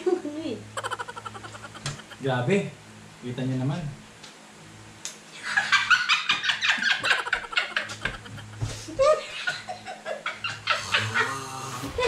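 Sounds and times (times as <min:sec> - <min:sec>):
people laughing hard: 0:00.8 - 0:02.2, 0:05.4 - 0:12.0.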